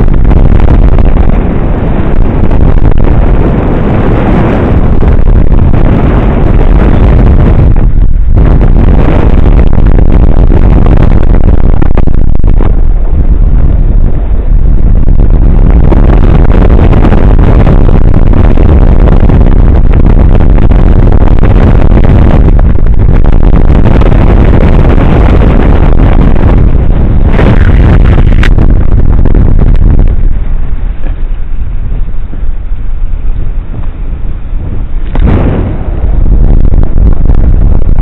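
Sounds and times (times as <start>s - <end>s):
heavy wind buffeting microphone: 0.0s - 38.0s.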